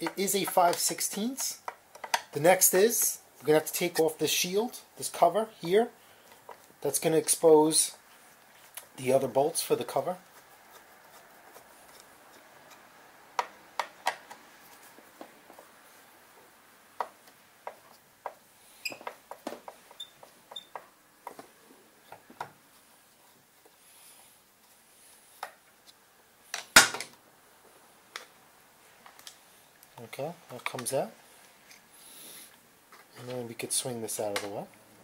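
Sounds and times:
hands clicking and tapping metal: 0.0s - 3.2s, 10.4s - 14.5s, 34.2s - 34.7s.

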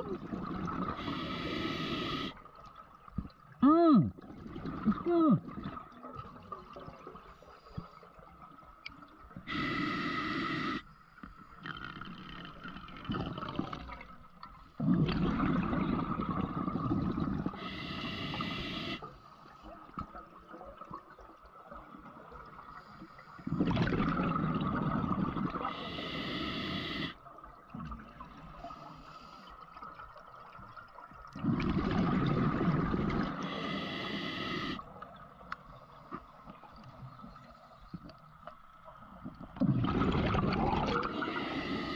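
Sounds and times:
exhaled bubbles rumbling: 0.0s - 1.4s, 12.0s - 14.2s, 14.8s - 17.7s, 23.4s - 25.8s, 31.3s - 34.8s, 39.0s - 41.9s
regulator hiss on inhale: 0.9s - 2.4s, 9.5s - 11.4s, 17.5s - 19.6s, 25.6s - 27.2s, 28.7s - 29.6s, 33.3s - 34.8s, 41.0s - 41.9s.

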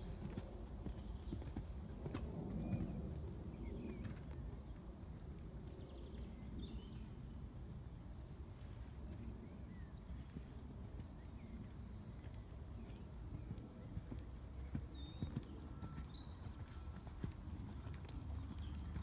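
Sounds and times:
horse hoofbeats on sand: 10.2s - 19.0s.

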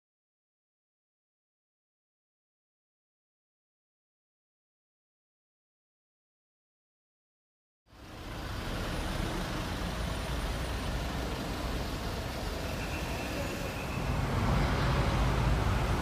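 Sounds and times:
road traffic rumble: 7.9s - 16.0s.

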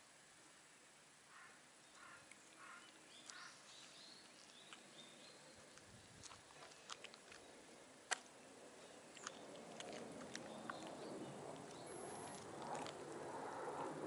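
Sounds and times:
cats grooming clicks and ticks: 5.6s - 8.4s, 9.1s - 13.3s.

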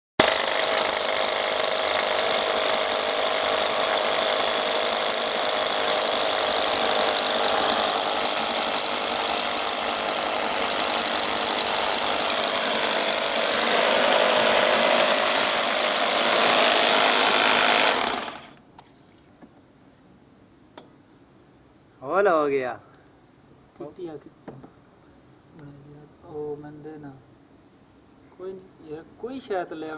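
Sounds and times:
rotary hammer drill boring wall: 0.2s - 18.6s.

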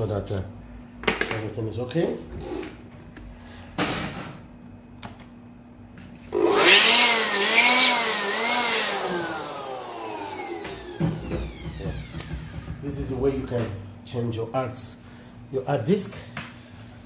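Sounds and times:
electric blower motor whine: 6.2s - 12.8s.

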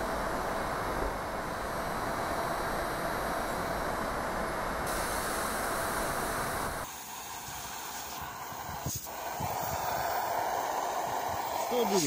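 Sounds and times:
heat gun blowing: 4.9s - 12.0s
hiss of escaping gas: 4.9s - 12.0s.

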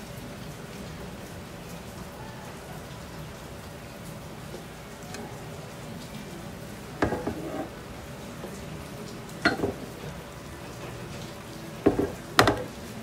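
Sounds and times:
butter sizzling in a frying pan: 4.2s - 10.3s, 11.0s - 13.0s.

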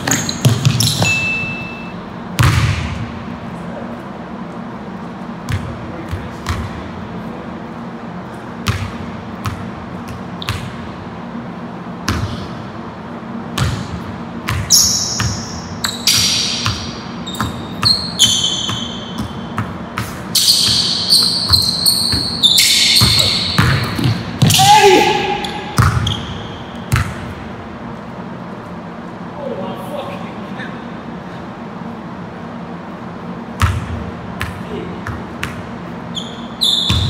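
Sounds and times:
sneakers squeaking on floor: 0.0s - 3.0s, 8.6s - 10.9s, 13.6s - 27.4s, 33.6s - 37.0s
basketball bouncing on gym floor: 0.0s - 3.2s, 5.4s - 6.9s, 8.6s - 11.0s, 12.0s - 12.6s, 13.5s - 27.4s, 33.5s - 35.9s, 36.7s - 37.0s.

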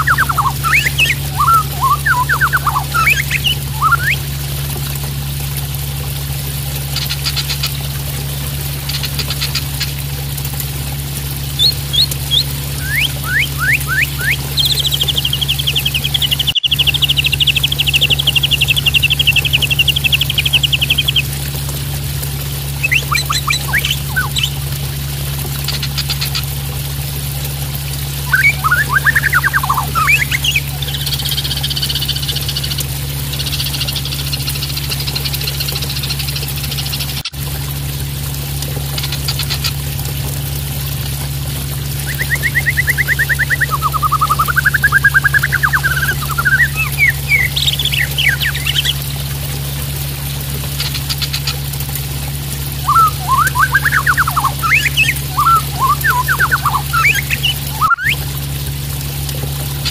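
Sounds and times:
buzzy bird chatter: 0.0s - 4.2s, 6.9s - 7.8s, 8.8s - 10.0s, 11.5s - 21.3s, 22.7s - 24.7s, 28.2s - 37.3s, 42.0s - 49.2s, 52.8s - 58.2s
rapid chattering bird trill: 0.0s - 4.2s, 11.6s - 21.3s, 22.8s - 24.6s, 28.3s - 32.7s, 42.1s - 49.0s, 52.8s - 58.2s
bird calling clicks and whistles: 0.0s - 4.3s, 6.9s - 7.8s, 8.8s - 10.0s, 11.5s - 21.4s, 22.7s - 24.7s, 28.2s - 37.3s, 42.0s - 49.1s, 52.8s - 58.3s
low steady hum: 0.0s - 59.9s
water splashing: 0.0s - 59.9s.

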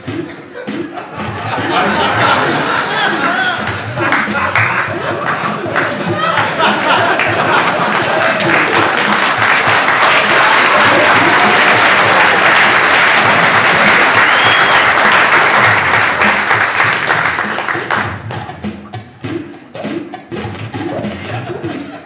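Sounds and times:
audience applauding: 1.5s - 18.2s.

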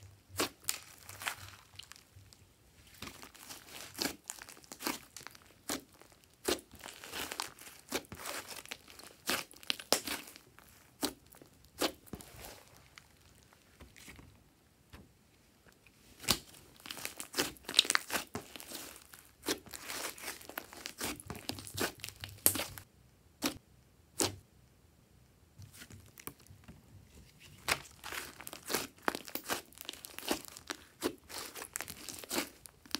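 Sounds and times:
slime squeezed and stretched: 0.3s - 2.0s, 2.9s - 13.4s, 16.2s - 23.6s, 27.5s - 32.9s.

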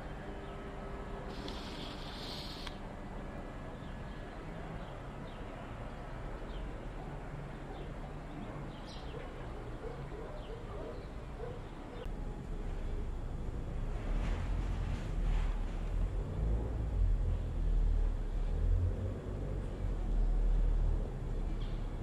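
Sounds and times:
steady outdoor hiss: 0.0s - 22.0s
birds chirping: 1.3s - 2.8s.

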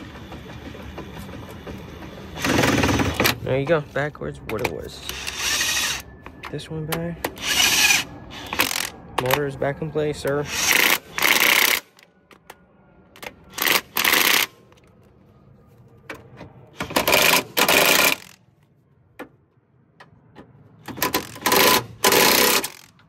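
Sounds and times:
impact wrench rattling: 10.5s - 12.0s, 16.8s - 18.4s, 20.8s - 23.0s.

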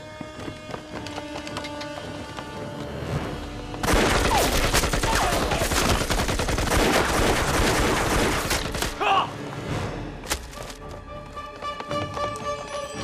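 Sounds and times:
automatic gunfire: 3.8s - 8.8s
dramatic soundtrack music: 6.6s - 13.0s.

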